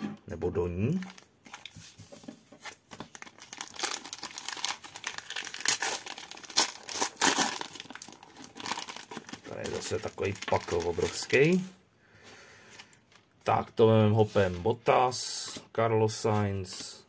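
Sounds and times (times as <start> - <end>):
card pack wrapping crinkling: 0.9 - 11.7.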